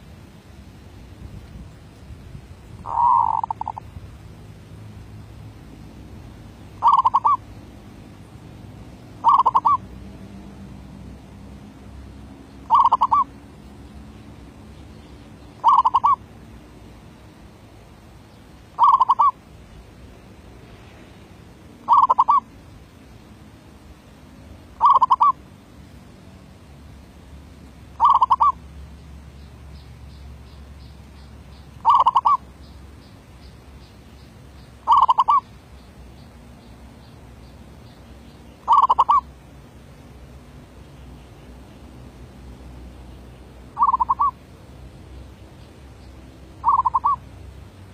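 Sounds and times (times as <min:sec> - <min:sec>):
dove cooing in trilled coos: 0:02.8 - 0:03.8, 0:06.8 - 0:07.4, 0:09.2 - 0:09.8, 0:12.7 - 0:13.3, 0:15.6 - 0:16.2, 0:18.8 - 0:19.4, 0:21.9 - 0:22.4, 0:24.8 - 0:25.4, 0:28.0 - 0:28.6, 0:31.8 - 0:32.4, 0:34.9 - 0:35.4, 0:38.7 - 0:39.3, 0:43.8 - 0:44.4, 0:46.6 - 0:47.2.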